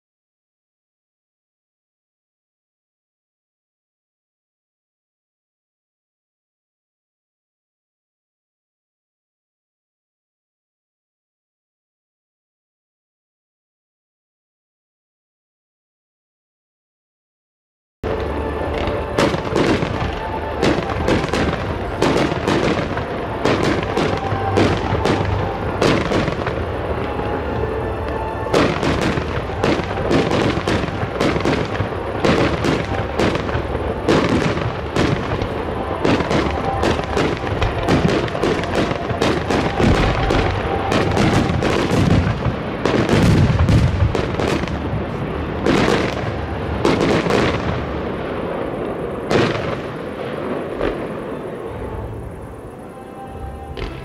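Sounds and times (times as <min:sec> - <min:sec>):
continuous low rumble: 0:18.0 - 0:54.0
firework shells bursting: 0:18.1 - 0:52.3.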